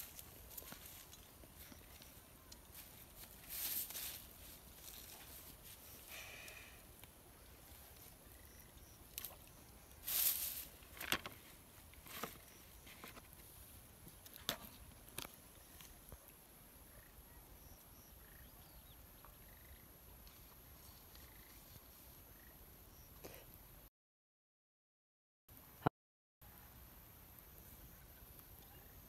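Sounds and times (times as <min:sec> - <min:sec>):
rustles in dry grass: 0:00.0 - 0:08.3, 0:09.0 - 0:16.4, 0:20.2 - 0:22.4.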